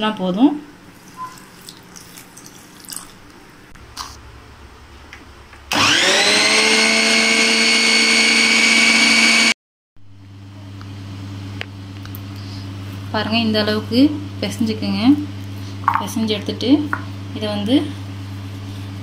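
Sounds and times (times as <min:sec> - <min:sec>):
food processor motor whining: 0:05.7 - 0:09.6.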